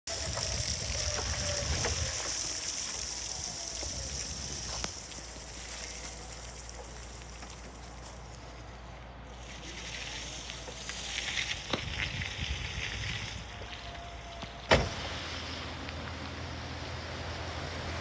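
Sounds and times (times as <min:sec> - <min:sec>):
electric forklift whine: 0:00.1 - 0:18.0
tyres crunching on wet gravel: 0:00.1 - 0:18.0.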